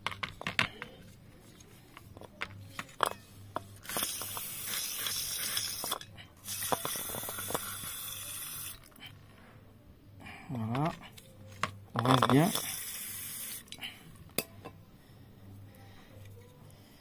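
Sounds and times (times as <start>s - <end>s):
aerosol spray hissing: 12.5s - 13.6s.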